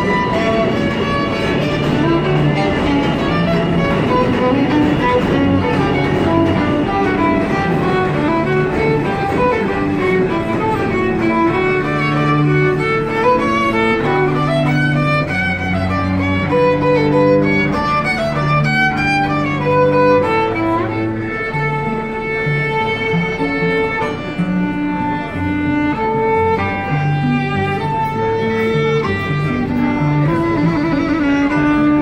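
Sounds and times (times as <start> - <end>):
sustained cello notes: 0.0 - 32.0
violin melody: 0.0 - 32.0.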